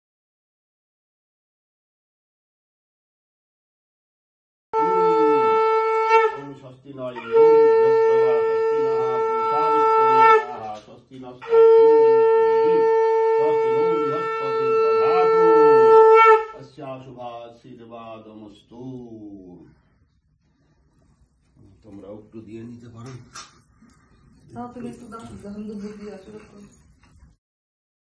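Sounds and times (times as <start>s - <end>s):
conch shell blowing: 4.8s - 16.7s.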